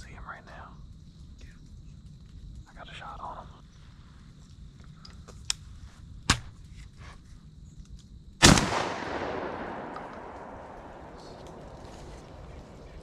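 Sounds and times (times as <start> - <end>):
shotgun shot echoing: 8.4 - 13.0
sharp clicks: 8.5 - 13.0.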